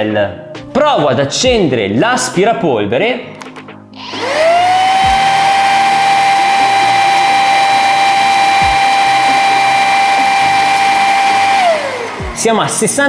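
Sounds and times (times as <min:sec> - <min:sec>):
stick vacuum running: 0:04.0 - 0:13.0.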